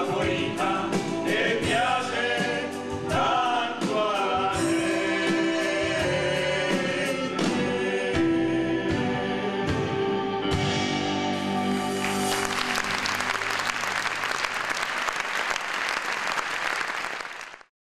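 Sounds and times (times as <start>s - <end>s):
men singing with accompaniment: 0.0s - 9.9s
audience applauding: 11.9s - 17.7s.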